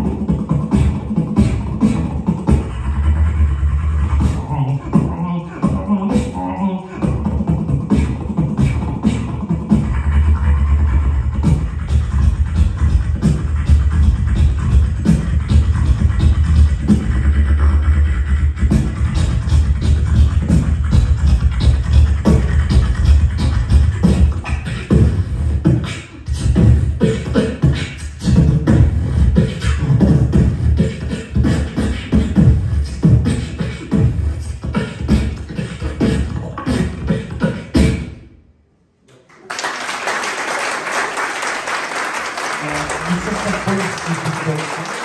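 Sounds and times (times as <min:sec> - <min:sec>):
beatboxing into microphone: 0:00.0 - 0:38.5, 0:42.4 - 0:45.0
audience applause: 0:39.1 - 0:45.0.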